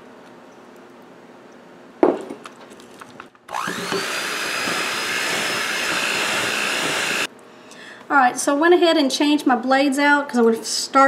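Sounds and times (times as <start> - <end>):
electric mixer whining: 3.5 - 7.3.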